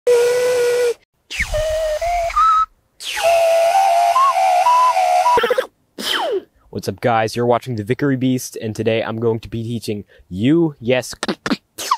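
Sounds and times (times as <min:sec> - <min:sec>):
breathy mouth whistle: 0:00.1 - 0:06.5.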